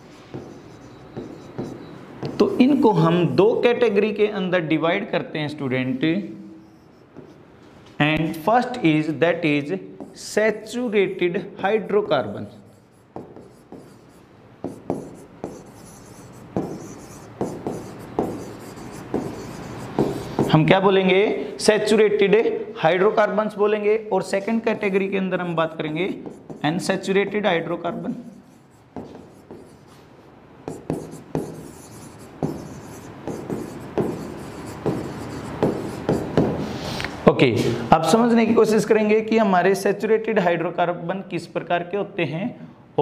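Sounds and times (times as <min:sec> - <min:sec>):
pen tapping and scratching on screen: 0:00.0 - 0:02.8, 0:06.6 - 0:07.4, 0:10.0 - 0:10.4, 0:12.1 - 0:20.6, 0:25.8 - 0:27.2, 0:28.3 - 0:30.0, 0:30.6 - 0:36.6.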